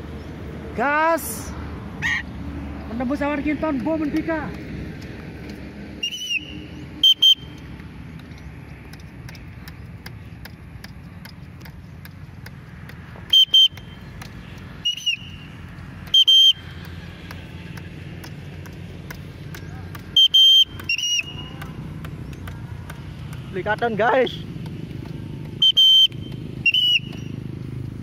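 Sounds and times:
shrill whistle blasts: 6.0 - 7.6, 13.3 - 14.0, 14.8 - 16.7, 20.1 - 21.6, 25.6 - 27.4.

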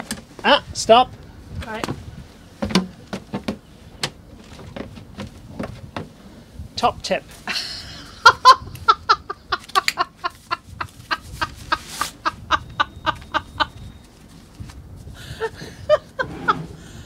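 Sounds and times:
woman laughing hard: 7.5 - 13.9, 15.2 - 17.0.

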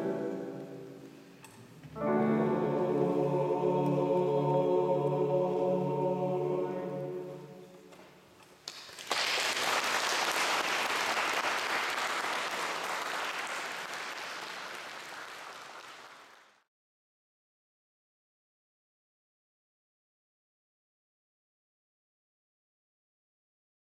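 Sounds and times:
men's choir holding a chord: 2.0 - 7.6.

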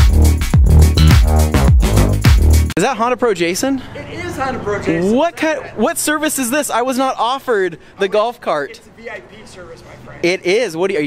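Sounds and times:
heavy kick drum: 0.0 - 2.7
electronic dance music: 0.0 - 2.8.

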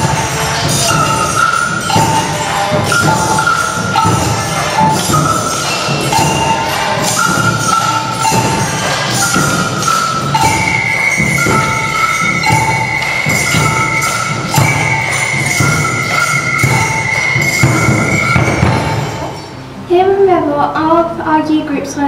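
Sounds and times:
tambourines and maracas shaking: 0.0 - 19.6
two alternating ringing notes: 0.0 - 19.9.

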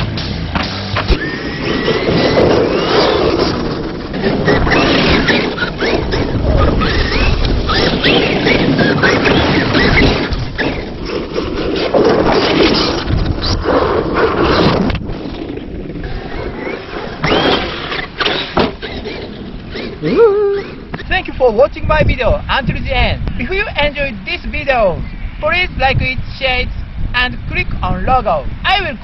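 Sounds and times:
steady rushing noise: 0.0 - 29.0
rc car motors whining: 1.0 - 21.5.

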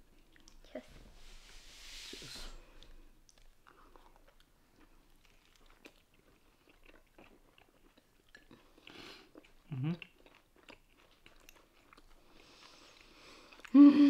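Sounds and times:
crunching taco shells: 3.2 - 13.7.

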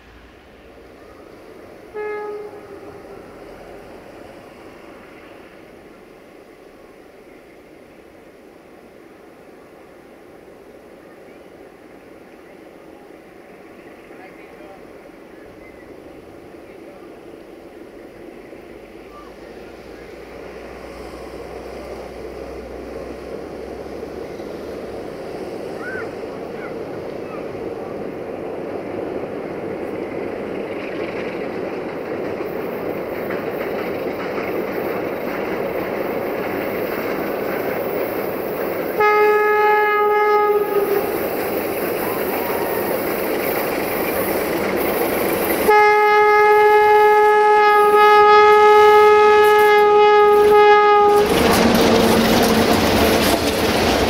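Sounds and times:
diesel locomotive approaching: 0.0 - 54.0
locomotive horn blasts: 1.9 - 3.4, 39.0 - 41.2, 45.7 - 52.7
wagons clattering over rail joints: 30.0 - 39.0, 49.4 - 54.0.

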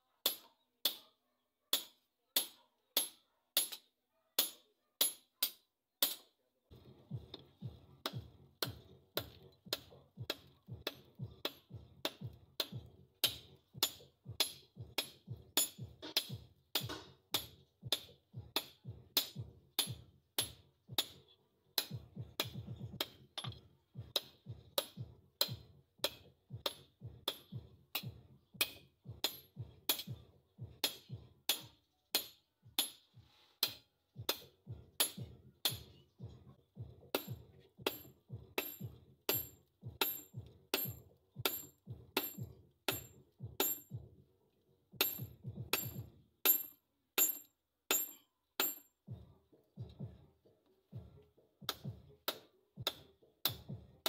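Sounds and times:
hammer striking metal on anvil: 8.0 - 21.2, 21.8 - 30.2, 30.8 - 33.0, 33.6 - 36.0, 37.1 - 44.0, 45.0 - 48.9.

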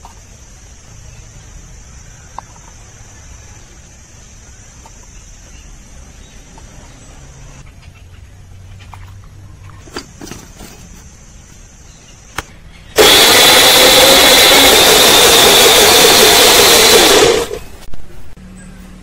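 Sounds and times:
mixer grinder whining: 13.0 - 17.8.

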